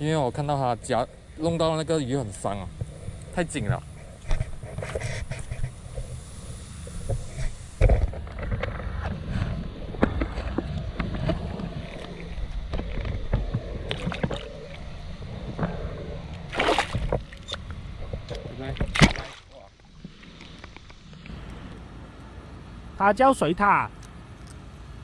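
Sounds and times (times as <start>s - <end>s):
water sloshing and splashing: 9.9s - 21.4s.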